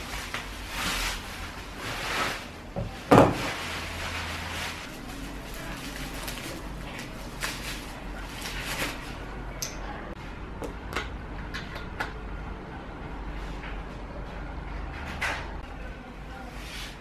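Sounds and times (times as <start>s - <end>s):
plastic wrap crinkling: 0.0s - 9.3s.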